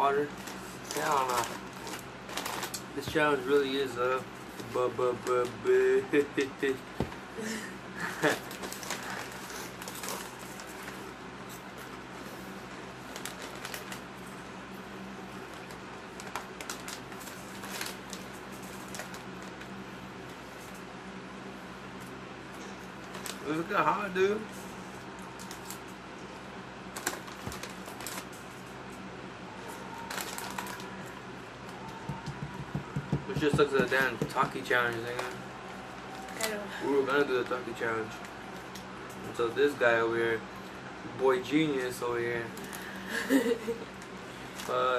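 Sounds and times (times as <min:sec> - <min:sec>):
snack bags crinkling: 0:00.1 - 0:03.2, 0:08.1 - 0:11.0, 0:13.1 - 0:14.1, 0:15.5 - 0:19.8, 0:26.9 - 0:28.6, 0:30.0 - 0:32.0
people crunching snacks: 0:08.0 - 0:10.8, 0:30.0 - 0:31.2.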